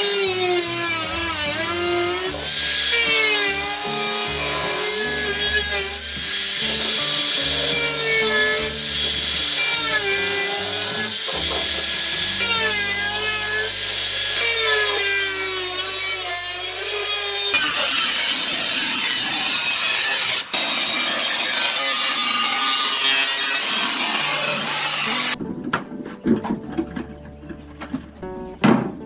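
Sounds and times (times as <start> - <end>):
angle grinder cutting metal: 0.0 - 25.4.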